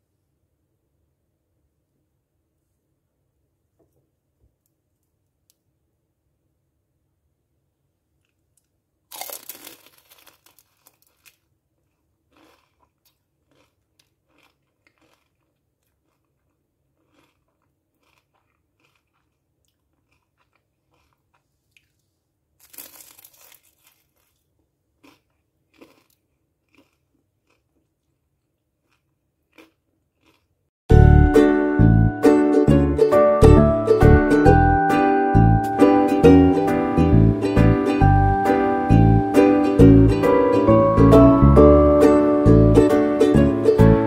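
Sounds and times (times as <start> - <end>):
spring roll crunching: 9.1 - 11.4
music: 30.9 - 44.0.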